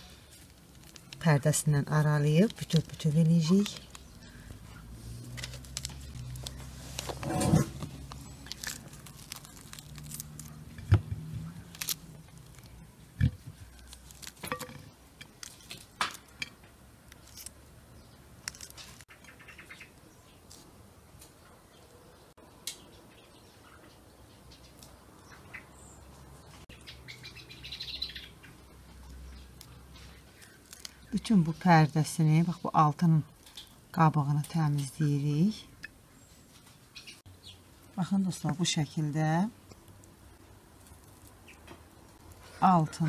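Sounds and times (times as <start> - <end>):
pomegranate rind snapping: 0.5 - 4.2, 5.3 - 6.6, 7.8 - 17.6, 18.4 - 19.1, 30.4 - 31.3.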